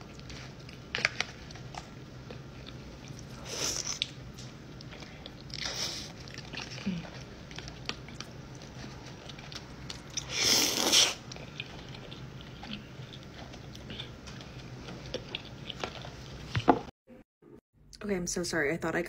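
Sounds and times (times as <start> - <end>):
wet chewing: 0.0 - 16.7
loud slurp: 10.2 - 11.2.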